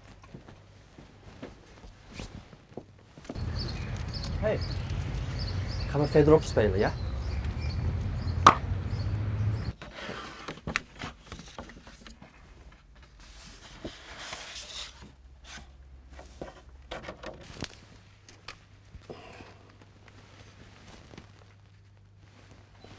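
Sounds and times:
paper rustling: 0:03.3 - 0:05.4, 0:09.8 - 0:16.7
low outdoor rumble: 0:03.4 - 0:09.8.

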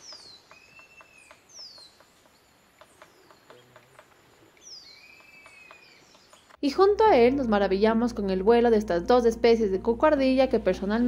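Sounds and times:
woodpecker tapping on wood: 0:00.0 - 0:06.6
bird whistling call: 0:04.6 - 0:06.1.

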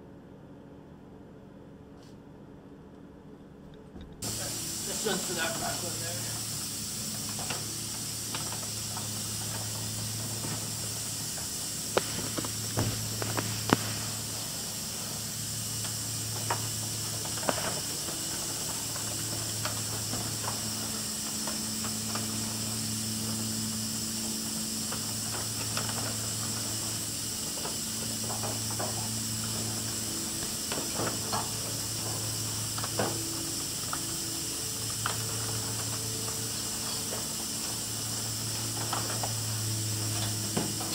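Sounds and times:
machinery hissing and humming: 0:04.0 - 0:40.9
crinkling of duct and plastic: 0:11.9 - 0:14.3.

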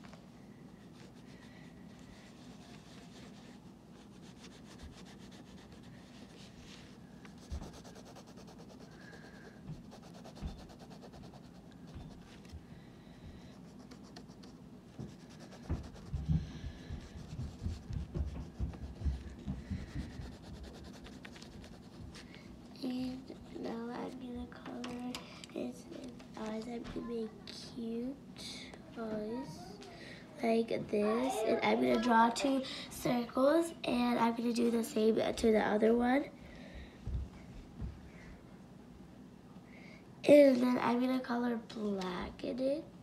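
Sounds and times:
wax crayon scratching on paper: 0:01.0 - 0:12.5, 0:13.6 - 0:22.4.

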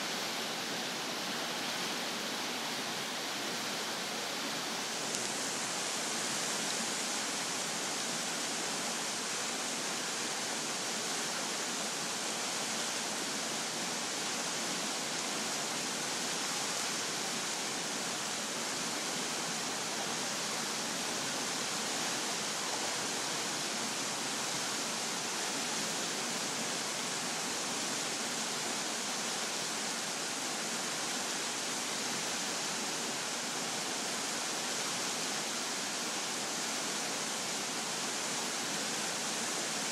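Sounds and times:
floodwater rushing down creek: 0:00.0 - 0:39.9.

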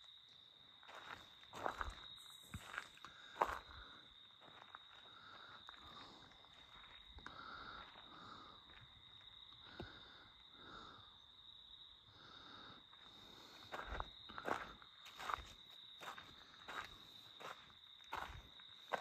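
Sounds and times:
footsteps crunching on gravel: 0:00.9 - 0:07.2, 0:13.6 - 0:19.0.

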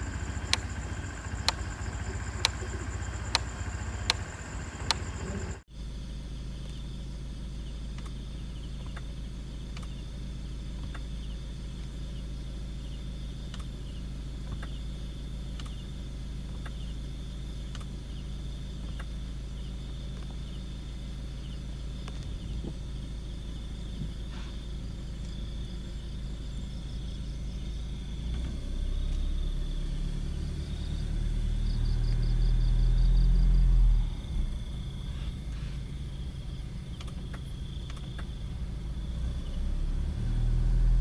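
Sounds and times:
car engine humming: 0:00.0 - 0:41.0
crickets chirping: 0:00.0 - 0:41.0
faint click: 0:13.5 - 0:13.7, 0:15.6 - 0:15.8, 0:37.0 - 0:38.3.

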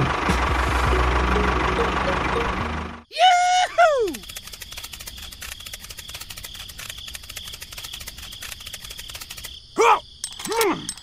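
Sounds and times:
crickets chirping: 0:03.2 - 0:11.0.

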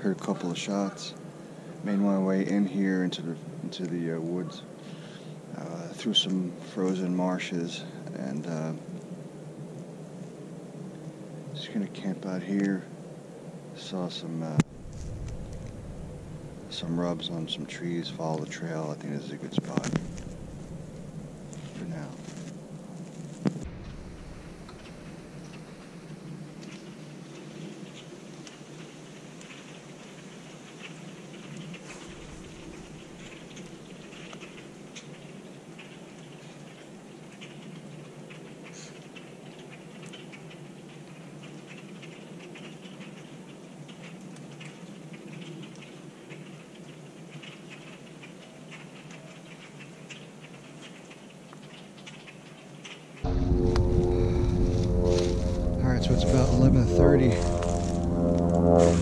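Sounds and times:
small ticks and crackles: 0:00.0 - 0:53.3
dry leaves rustling: 0:14.7 - 0:37.3, 0:53.2 - 0:59.0.

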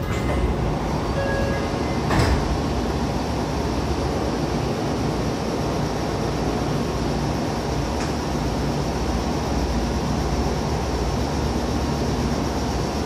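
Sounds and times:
rail joint clunk: 0:00.0 - 0:02.8
train wheels rumbling on track: 0:00.0 - 0:13.0.

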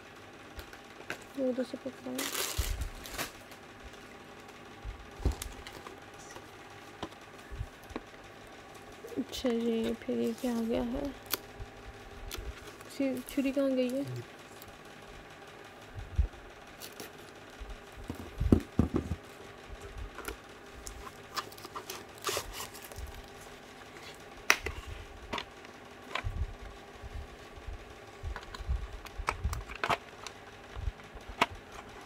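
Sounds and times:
paper rustling and crackling: 0:02.1 - 0:03.6, 0:09.4 - 0:11.4, 0:20.9 - 0:24.7
plastic case clicks and knocks: 0:18.1 - 0:19.2
knife slitting paper: 0:21.3 - 0:23.0.

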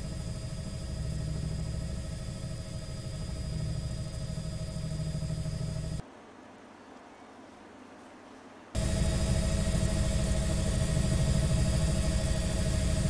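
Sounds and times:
helicopter engine and rotors: 0:00.0 - 0:06.0, 0:08.8 - 0:13.0.

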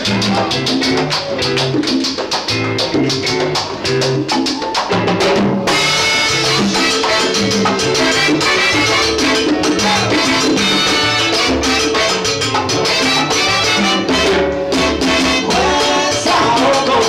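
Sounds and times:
bass line: 0:00.0 - 0:17.0
congas: 0:00.0 - 0:17.0
salsa band playing: 0:00.0 - 0:17.0.

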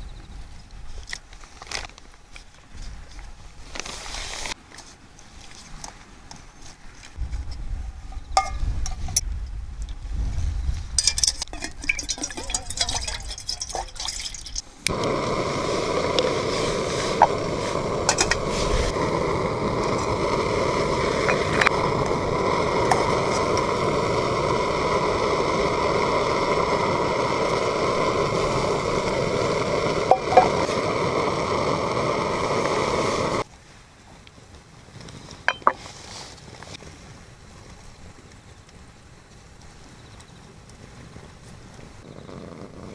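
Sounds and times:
gas stove burner hissing: 0:14.8 - 0:33.5.

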